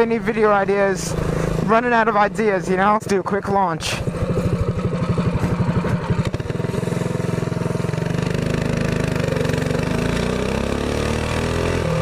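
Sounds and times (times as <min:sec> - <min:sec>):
minibike engine accelerating: 0:03.8 - 0:12.0.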